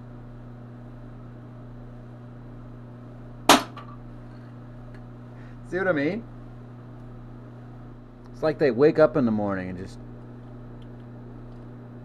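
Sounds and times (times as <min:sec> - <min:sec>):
capacitor bursting with a bang: 0:03.5 - 0:03.9.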